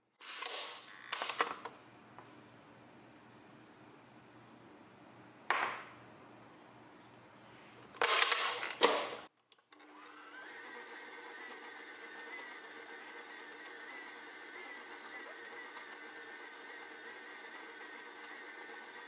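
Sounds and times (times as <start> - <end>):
mixer motor whirring whine: 9.7 - 19.0
stand mixer churning dough: 9.8 - 19.0.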